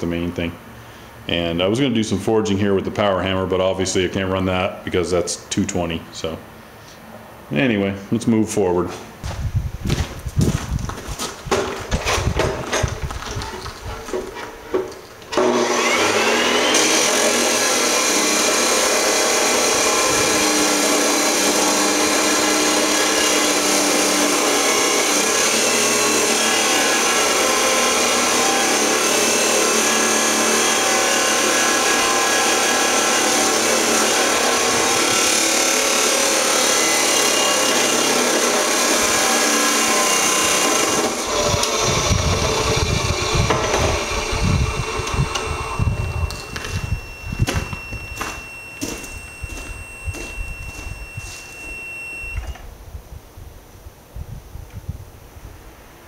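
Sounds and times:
electric grinder grinding steel: 15.3s - 52.2s.

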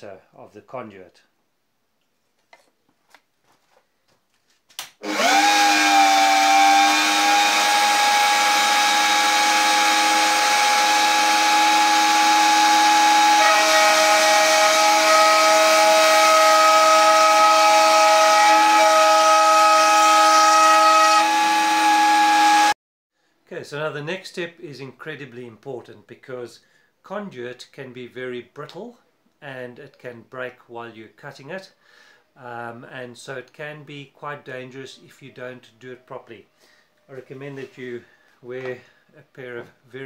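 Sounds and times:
router bit cutting wood: 5.0s - 22.8s
router motor whine: 5.0s - 22.8s.

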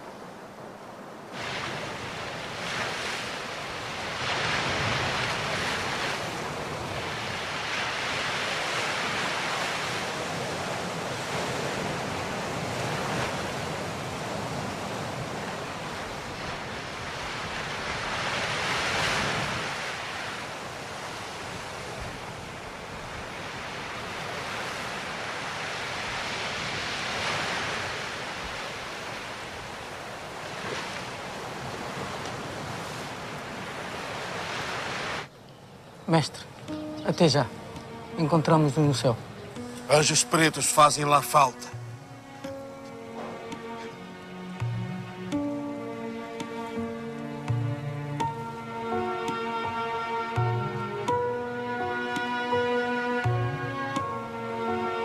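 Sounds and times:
wind: 0.0s - 55.0s
surf washing onto rocky shore: 1.2s - 35.3s.

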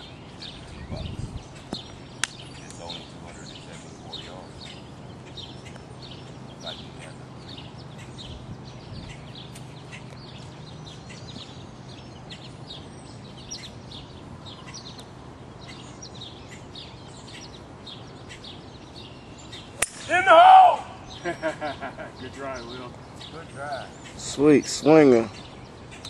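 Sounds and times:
songbirds chirping: 0.0s - 26.0s
golf club striking ball: 19.8s - 20.2s.

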